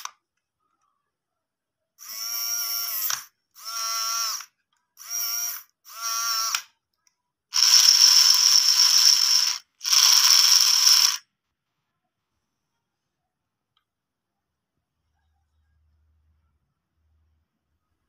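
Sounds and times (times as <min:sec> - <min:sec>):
small geared motor whirring: 0:07.6 - 0:11.2.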